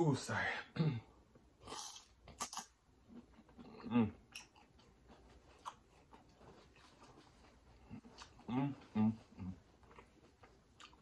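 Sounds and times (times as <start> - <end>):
man humming: 8.5 - 9.6.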